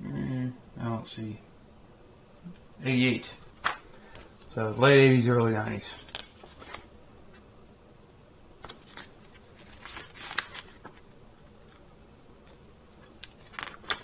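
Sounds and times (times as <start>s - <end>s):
glossy paper pages rustling: 3.3s - 4.8s, 5.6s - 7.5s, 8.6s - 14.0s
sharp paper click: 12.5s - 14.0s.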